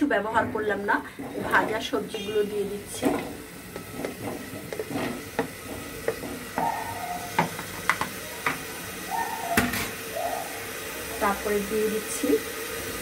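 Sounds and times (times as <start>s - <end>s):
food sizzling: 0.0s - 13.0s
food pieces knocking into pot: 2.9s - 6.7s, 7.3s - 8.7s
spatula scraping and tapping plate: 3.0s - 8.6s.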